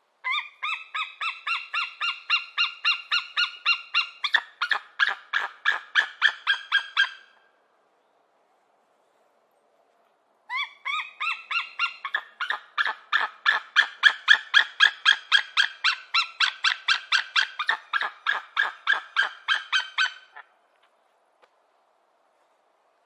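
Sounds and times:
eagle yelping calls: 0:00.2 - 0:07.4, 0:10.5 - 0:20.6.

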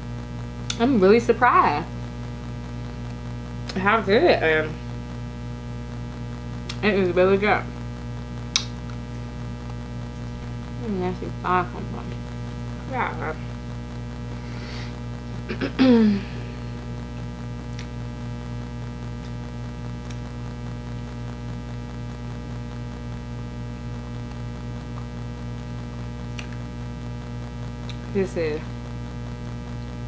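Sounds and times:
electrical mains hum: 0:00.0 - 0:30.0
woman's falling vocal sound: 0:15.5 - 0:16.6.

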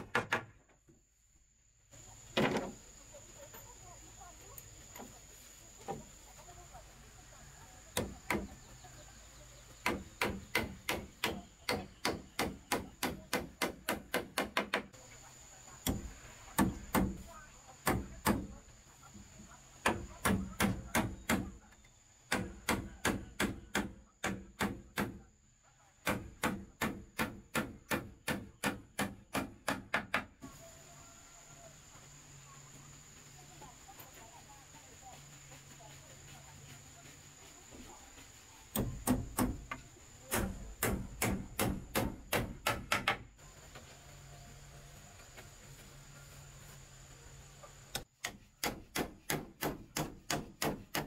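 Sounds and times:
hammer driving nails into wood: 0:26.0 - 0:30.3, 0:38.7 - 0:43.3, 0:48.2 - 0:51.0.

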